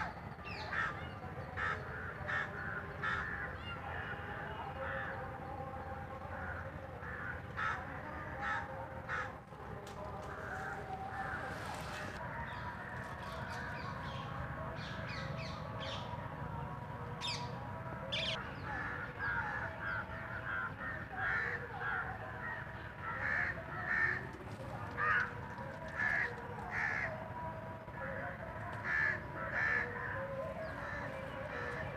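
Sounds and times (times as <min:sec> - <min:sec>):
crows cawing: 0:00.5 - 0:05.2, 0:06.4 - 0:09.4, 0:18.1 - 0:27.2, 0:28.0 - 0:31.9.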